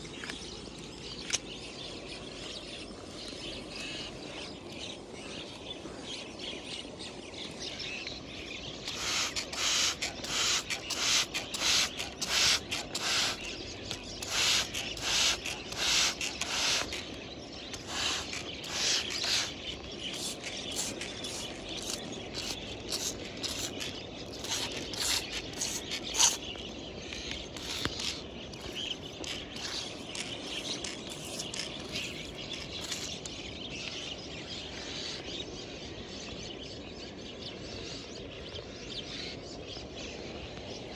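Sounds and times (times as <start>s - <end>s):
knife scraping clay and gravel: 8.8s - 33.3s.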